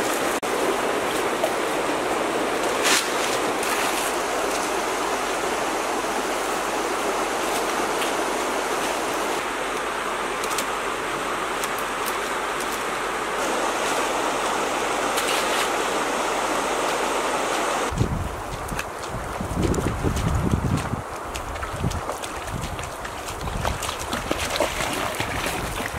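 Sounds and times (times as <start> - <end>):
river flowing over stones: 0.0 - 19.4, 21.0 - 25.9
dry thatch rustling: 2.6 - 4.8, 11.6 - 16.0.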